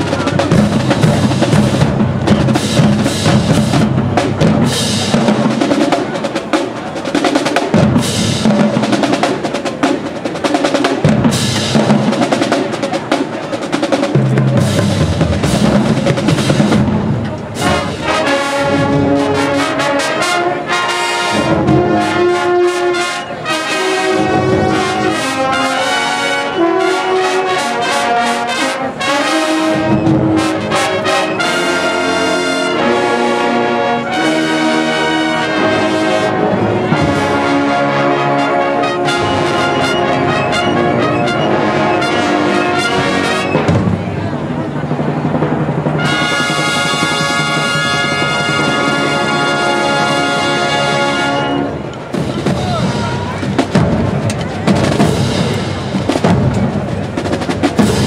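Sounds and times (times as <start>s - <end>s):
drumline playing fast cadence: 0.0s - 58.0s
brass section holding loud chords: 17.6s - 43.7s, 46.0s - 51.9s.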